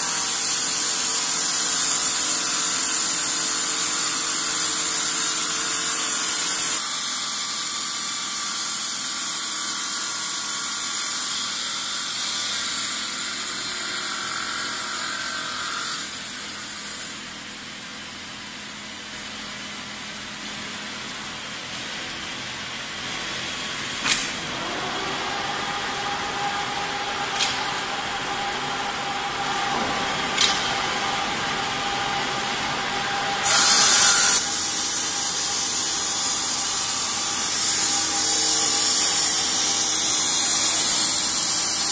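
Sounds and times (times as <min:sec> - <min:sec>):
cutting machine hissing: 0:23.7 - 0:41.9
steady whine: 0:24.0 - 0:40.6.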